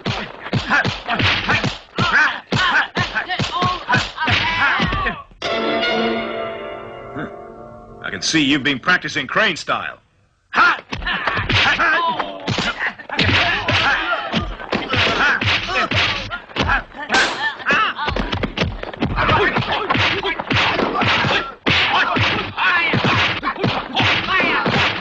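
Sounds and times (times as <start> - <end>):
punch and kick impacts: 0.0 - 5.2, 10.9 - 25.0
fighters yelling and grunting: 0.0 - 5.3, 10.5 - 18.4, 19.0 - 25.0.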